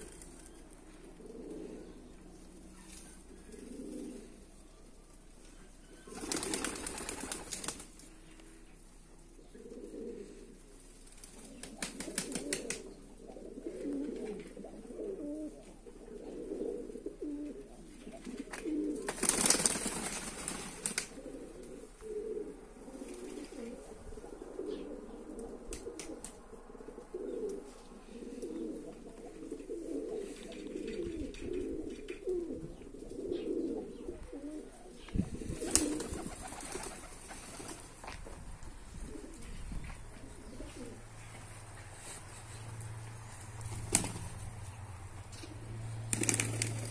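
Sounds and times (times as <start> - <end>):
pigeons cooing: 0.0 - 38.1, 38.7 - 46.9
wings flapping: 6.1 - 8.1, 11.1 - 12.9, 18.2 - 21.2, 35.5 - 38.1, 43.3 - 44.7, 45.4 - 46.9.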